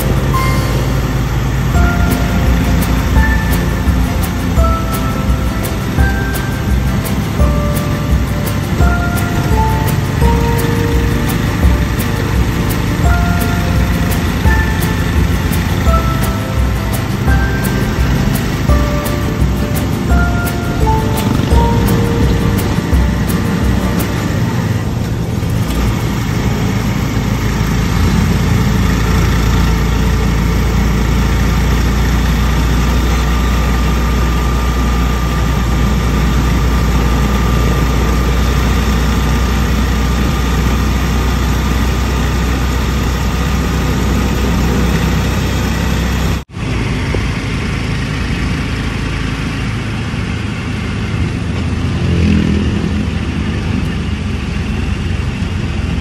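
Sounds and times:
motor tricycle engine running: 0.0 - 56.0
road and wind noise: 0.0 - 56.0.

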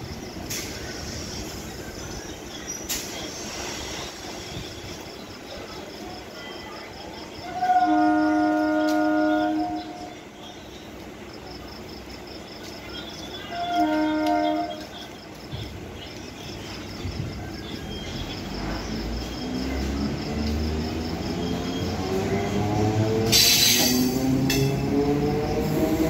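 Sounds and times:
crickets chirping: 0.0 - 26.0
train horn blasts: 7.4 - 10.2, 13.4 - 15.0.

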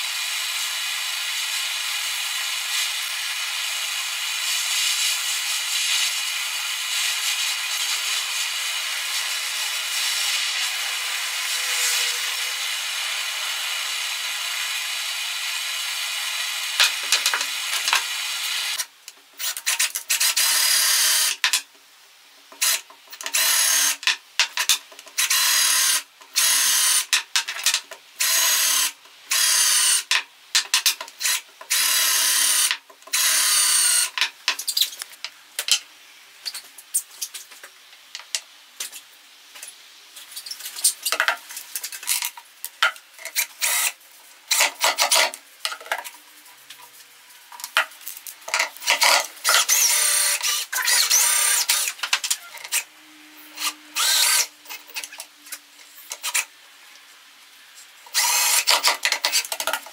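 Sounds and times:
cordless drill boring into wood: 0.0 - 18.8, 19.4 - 21.4, 22.6 - 27.2, 28.2 - 30.2, 31.2 - 34.2, 43.4 - 45.3, 48.8 - 52.8, 53.5 - 55.2, 58.1 - 59.6.

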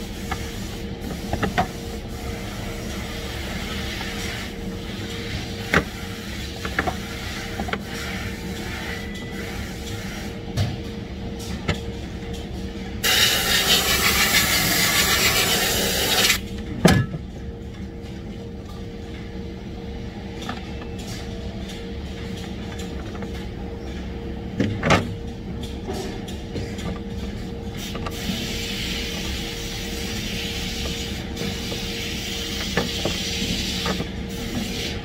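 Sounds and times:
factory machinery humming: 0.0 - 35.0
compressed air hissing: 13.0 - 16.4.

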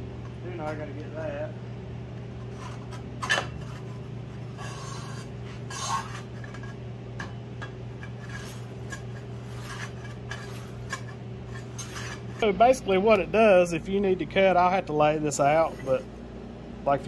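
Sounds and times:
steady low hum: 0.0 - 17.0
metal tubing scraping: 2.4 - 6.8, 7.9 - 12.5, 15.3 - 16.1.

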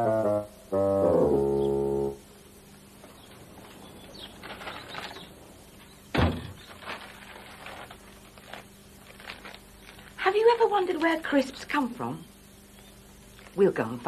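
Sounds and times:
faint footsteps: 2.7 - 10.6
coat rustling: 3.0 - 10.8
wooden door banging shut: 6.1 - 6.7.

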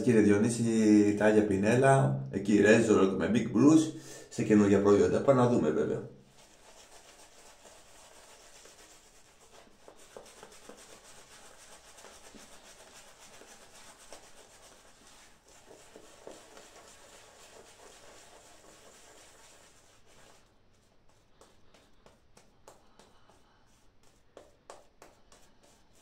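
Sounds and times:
shaving brush rubbing on face: 5.6 - 26.0.

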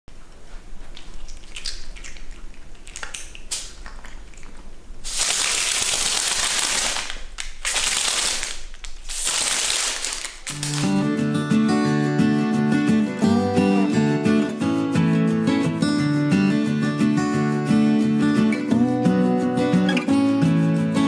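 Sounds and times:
sticky tape crackling rustle: 5.0 - 11.0.

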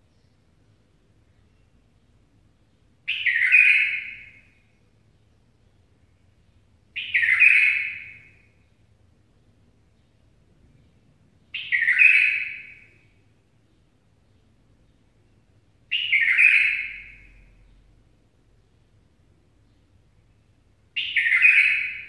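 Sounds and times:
songbird warbling: 3.1 - 4.6, 7.0 - 8.5, 11.5 - 13.2, 15.9 - 17.8, 20.9 - 22.0.

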